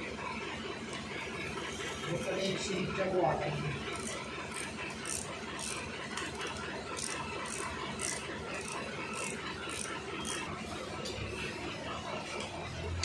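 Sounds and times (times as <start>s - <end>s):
ratchet wrench clicking: 3.9s - 11.3s.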